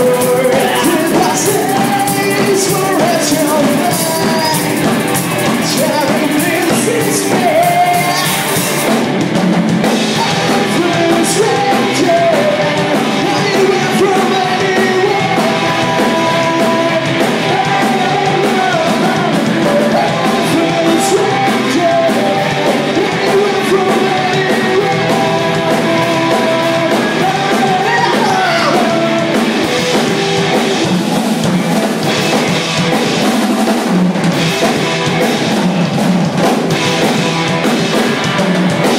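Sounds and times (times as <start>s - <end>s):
man singing into microphone: 0.0s - 8.8s, 9.9s - 30.9s
distorted electric guitars: 0.0s - 38.9s
drum kit: 0.0s - 38.9s.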